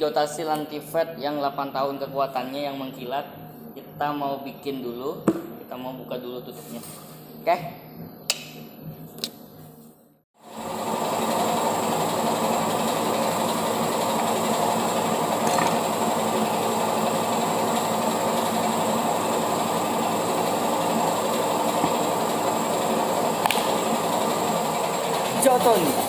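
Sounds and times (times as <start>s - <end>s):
loud mechanical rumbling: 10.4s - 26.0s.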